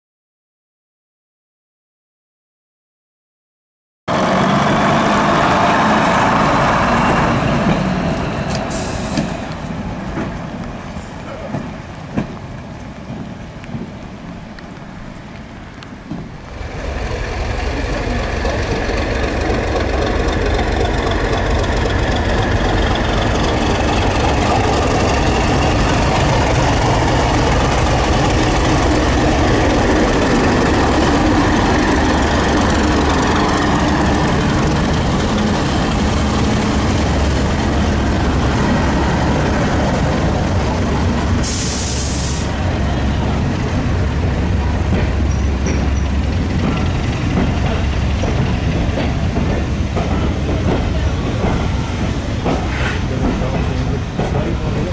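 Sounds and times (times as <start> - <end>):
diesel train engine running: 16.3 - 54.9
burst of hiss: 41.4 - 42.5.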